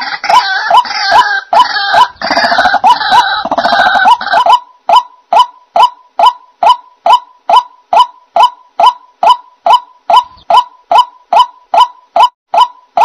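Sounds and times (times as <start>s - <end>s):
waterhen harsh croaking chorus: 0.0s - 13.0s.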